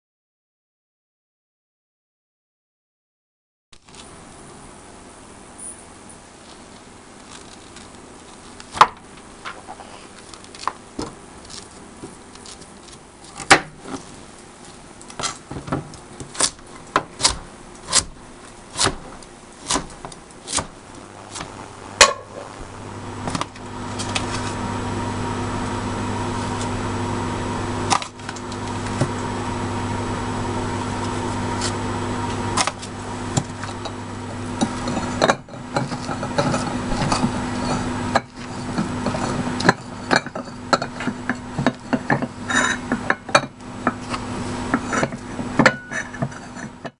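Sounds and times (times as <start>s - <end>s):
steady electrical hum: 3.8s - 46.9s
knife chopping on plastic board: 15.6s - 19.0s.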